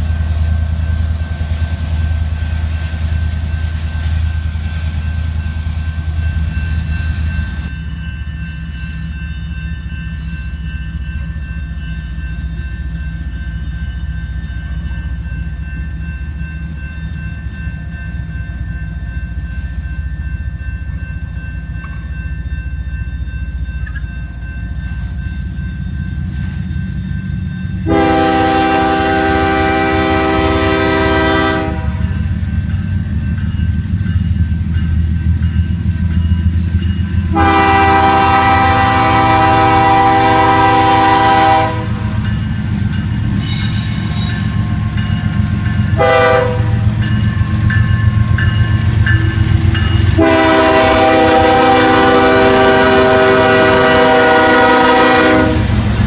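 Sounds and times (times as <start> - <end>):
diesel locomotive rumble: 0.0 - 56.0
locomotive air horn blasts: 27.8 - 32.0, 37.3 - 42.0, 46.0 - 46.8, 50.2 - 55.8.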